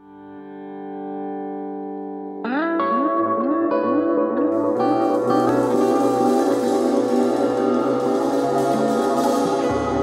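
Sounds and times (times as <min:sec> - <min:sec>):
instrumental background music: 0:02.4 - 0:10.0.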